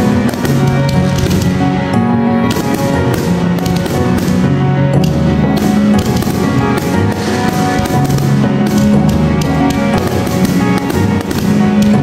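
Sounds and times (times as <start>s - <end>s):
sustained chords: 0.0s - 12.0s.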